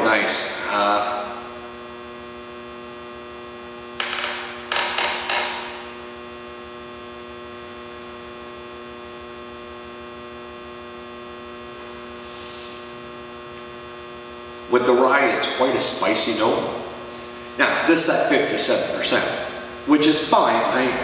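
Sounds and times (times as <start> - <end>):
electrical hum: 0.0 - 21.0
person sipping and breathing out: 12.2 - 12.9.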